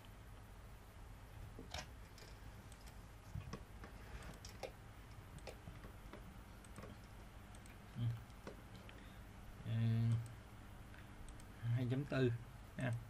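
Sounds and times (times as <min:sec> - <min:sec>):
low room hum: 0:00.0 - 0:13.0
computer mouse clicks: 0:01.6 - 0:09.0, 0:10.0 - 0:11.5.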